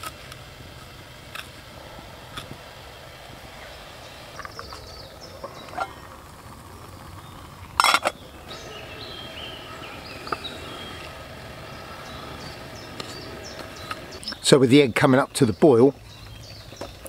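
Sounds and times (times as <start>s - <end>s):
small birds chirping: 2.0s - 17.0s
metal mug lid clatter: 7.8s - 8.2s.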